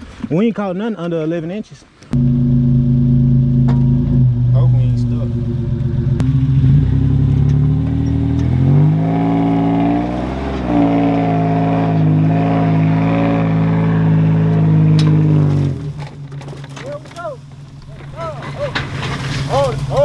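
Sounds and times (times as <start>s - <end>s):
car engine revving under load: 2.2s - 16.5s.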